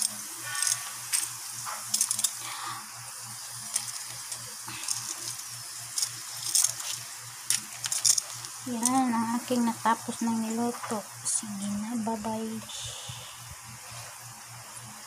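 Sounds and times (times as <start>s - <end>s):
cooking oil sizzling: 0.0s - 12.6s
oil crackles and pops: 3.5s - 9.2s.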